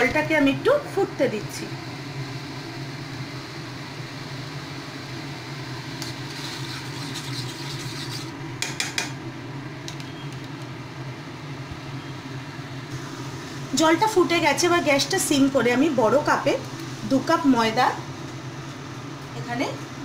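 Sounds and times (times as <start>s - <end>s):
water hissing and bubbling in a pan: 0.0s - 9.0s, 12.3s - 20.0s
spatula scraping a pan: 6.0s - 8.4s.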